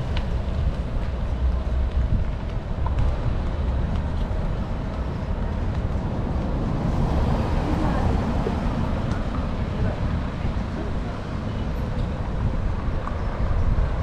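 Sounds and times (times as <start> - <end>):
traffic noise: 0.0 - 14.0
vehicle low rumble: 0.0 - 14.0.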